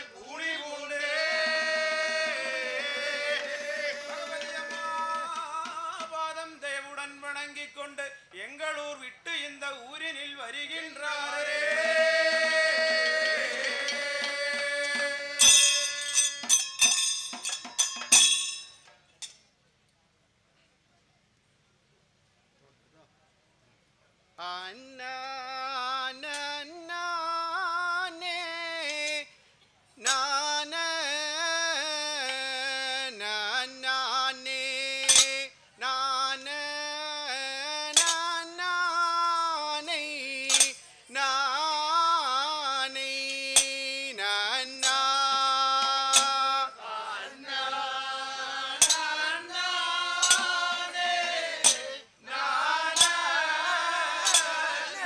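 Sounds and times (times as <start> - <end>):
men singing together: 0.0 - 6.3, 10.8 - 16.5, 39.8 - 55.0
sharp metallic clinks: 14.9 - 19.4, 35.0 - 35.4, 37.9 - 38.2, 40.5 - 40.9, 45.8 - 46.5, 48.8 - 49.2, 50.2 - 50.7, 51.6 - 51.9, 53.0 - 53.4, 54.2 - 54.6.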